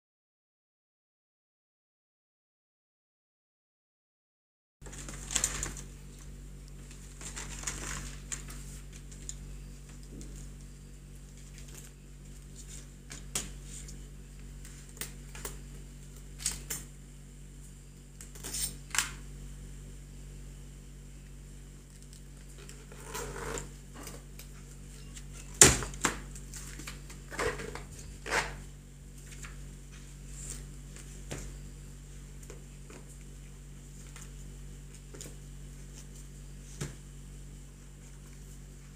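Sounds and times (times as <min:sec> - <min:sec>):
paper rustling: 0:04.8 - 0:15.5, 0:24.5 - 0:31.6
steady low hum: 0:04.8 - 0:38.9.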